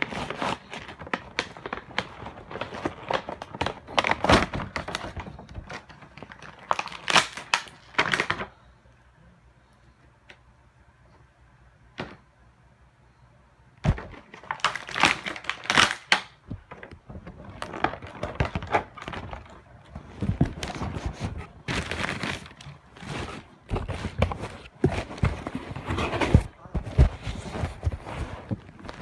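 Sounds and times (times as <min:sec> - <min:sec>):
plastic packaging being torn open: 0:00.0 - 0:08.5, 0:13.9 - 0:16.4.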